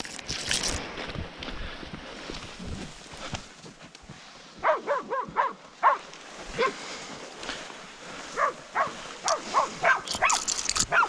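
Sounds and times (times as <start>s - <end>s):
dogs barking: 4.6s - 6.8s, 8.4s - 11.0s.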